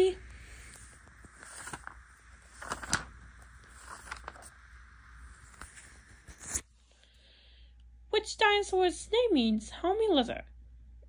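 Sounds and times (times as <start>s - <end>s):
faint rustling: 0.0s - 6.6s
low steady hum: 0.0s - 11.0s.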